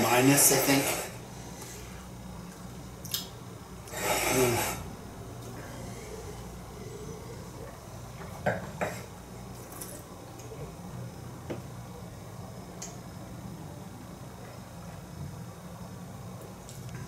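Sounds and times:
wine swirled in mouth: 3.9 - 7.8.

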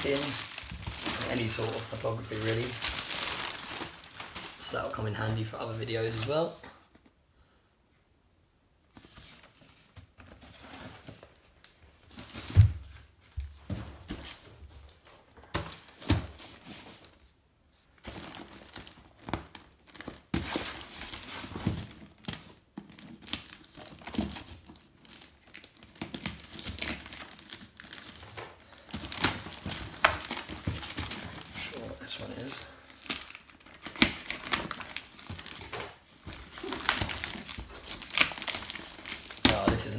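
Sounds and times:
plastic mailer bag crinkling: 0.0 - 6.6, 18.1 - 39.9.

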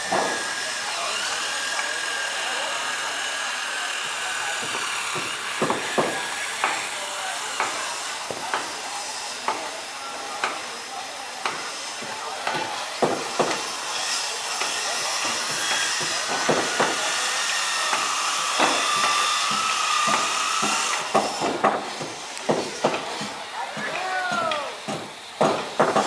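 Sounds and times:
hammer blows on timber: 0.0 - 0.6, 4.5 - 8.8, 11.4 - 26.0.

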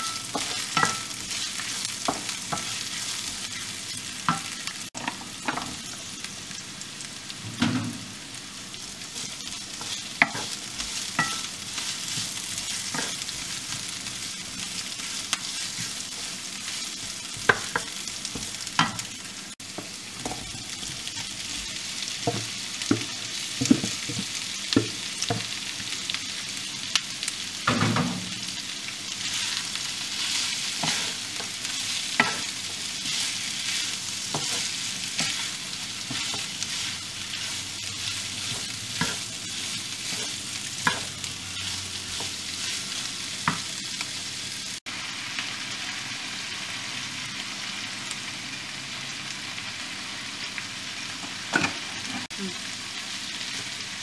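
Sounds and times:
meat sizzling in a wok: 0.0 - 54.0
wooden spatula stirring: 30.2 - 43.1.

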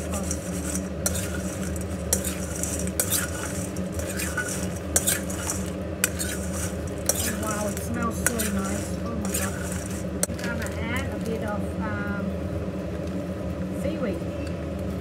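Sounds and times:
metal spoon scraping steel bowl: 0.0 - 11.3.

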